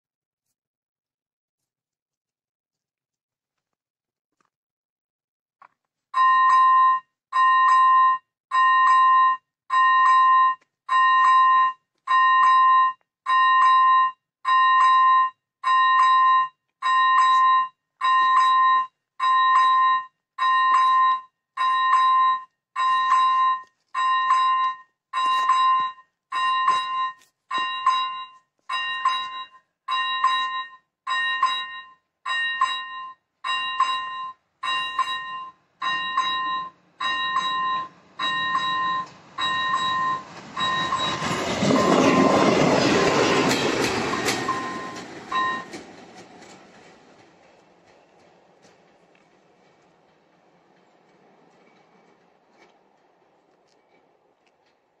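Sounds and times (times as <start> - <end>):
level crossing warning chime: 6.2 - 42.2, 44.1 - 45.8
approaching train: 13.4 - 55.0.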